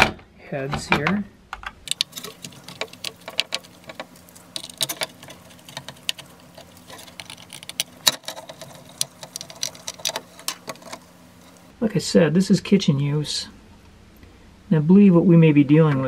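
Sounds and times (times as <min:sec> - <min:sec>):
faint steady hum: 0:00.0 - 0:16.0
plastic housing handled: 0:01.6 - 0:11.7
screwdriver clicking and scraping: 0:01.9 - 0:11.7.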